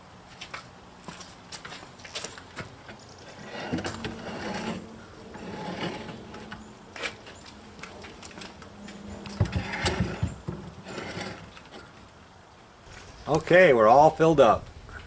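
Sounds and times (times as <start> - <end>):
metal rack scraping on wooden slats: 3.2 - 12.0.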